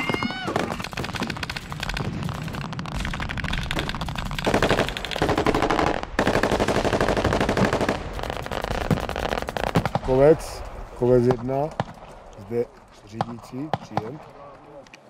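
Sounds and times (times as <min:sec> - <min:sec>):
machine-gun fire: 0:00.0 - 0:10.6.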